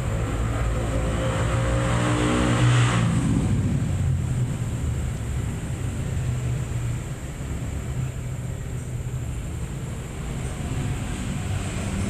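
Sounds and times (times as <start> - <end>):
engine passing by: 0.0 - 4.8, 10.0 - 12.0.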